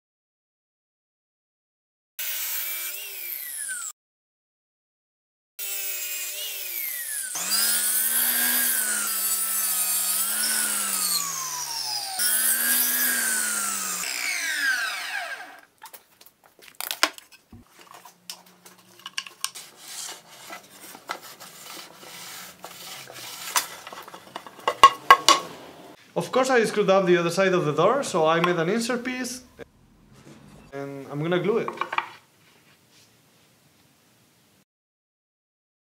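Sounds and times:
table saw cutting wood: 0:02.2 - 0:04.0, 0:05.6 - 0:15.7, 0:17.9 - 0:26.0
wood knocks and clicks: 0:31.7 - 0:32.2.

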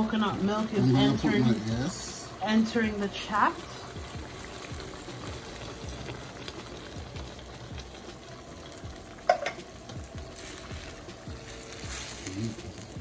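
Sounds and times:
pan simmering and bubbling: 0:00.0 - 0:13.0
coconut milk pouring: 0:03.6 - 0:13.0.

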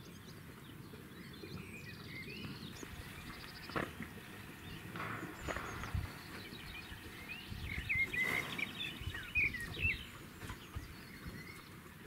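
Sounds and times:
songbird twittering: 0:00.0 - 0:12.0
low outdoor rumble: 0:02.5 - 0:12.0.

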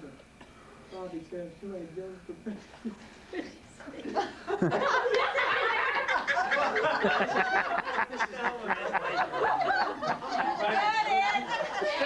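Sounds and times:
people laughing: 0:02.5 - 0:12.0.

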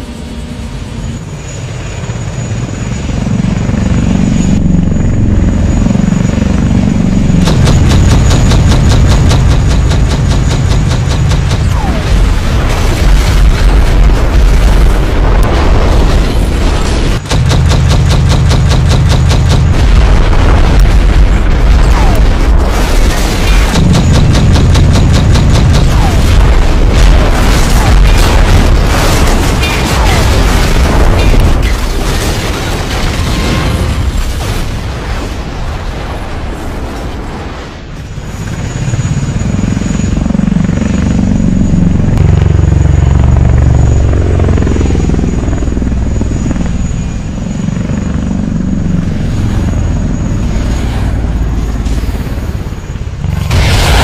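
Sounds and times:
drone rotors buzzing: 0:00.0 - 0:34.2, 0:38.1 - 0:54.0
explosion rumble and booms: 0:06.5 - 0:37.7, 0:49.2 - 0:54.0.

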